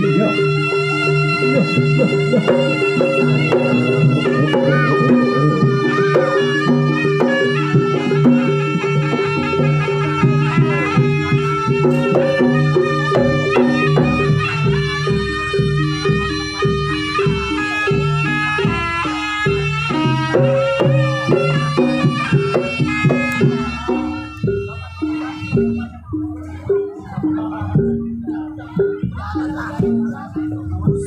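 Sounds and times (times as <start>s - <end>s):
drum strokes: 0.0s - 31.0s
reedy wind instrument melody: 0.0s - 31.0s.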